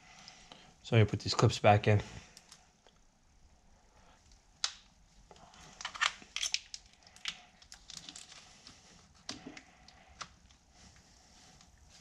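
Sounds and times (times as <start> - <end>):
plastic rustling: 5.3 - 12.0.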